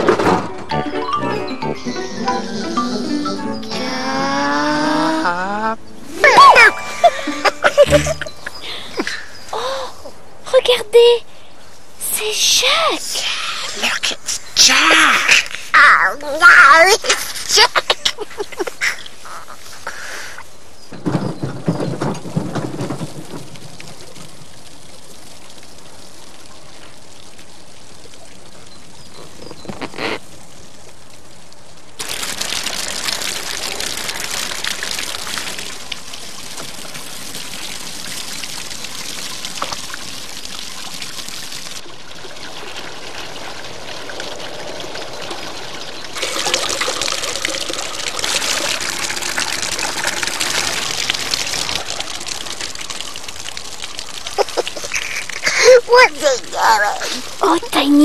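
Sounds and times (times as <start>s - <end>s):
water running through plastic pipes: 11.6s - 58.0s
water splashing: 22.2s - 58.0s.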